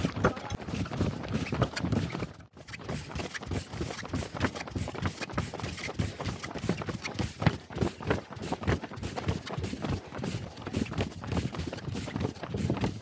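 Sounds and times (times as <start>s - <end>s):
running footsteps on tarmac: 0.0s - 13.0s.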